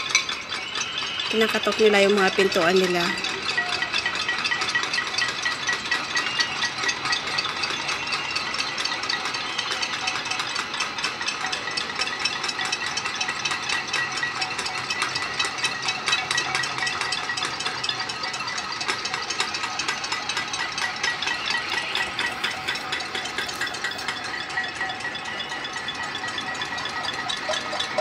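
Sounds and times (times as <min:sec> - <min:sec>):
pots and pans banging: 0:08.7 - 0:28.0.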